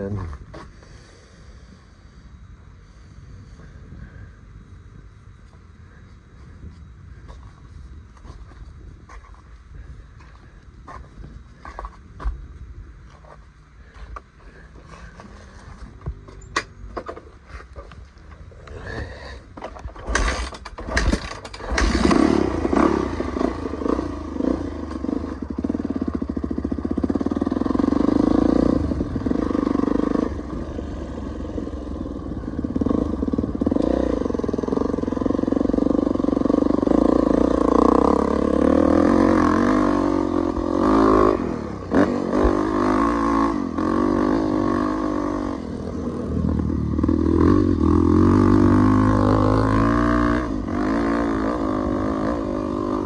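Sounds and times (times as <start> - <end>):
dirt bike engine revving: 20.1 - 53.0.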